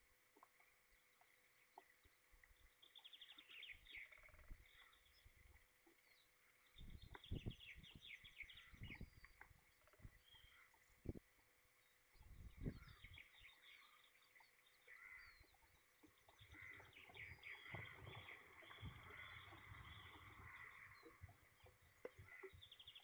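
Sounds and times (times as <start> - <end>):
songbirds trilling: 0.4 - 23.0
wind and rain on microphone: 6.7 - 11.4, 12.2 - 13.2, 17.2 - 22.4.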